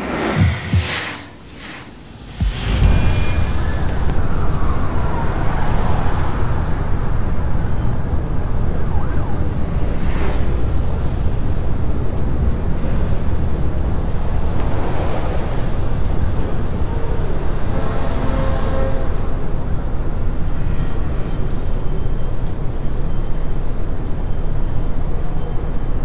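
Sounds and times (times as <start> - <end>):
road traffic rumble: 0.0 - 26.0
faint siren: 2.4 - 10.4.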